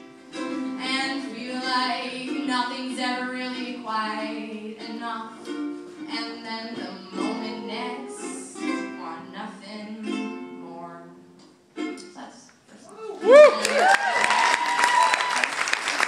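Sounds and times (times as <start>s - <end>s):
ukulele: 0.0s - 15.0s
woman singing: 0.7s - 11.4s.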